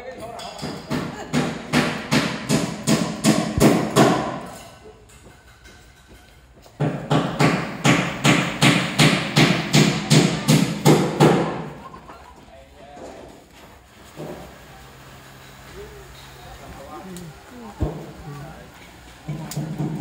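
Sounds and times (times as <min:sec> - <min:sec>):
hammer blows: 0:00.7 - 0:04.8.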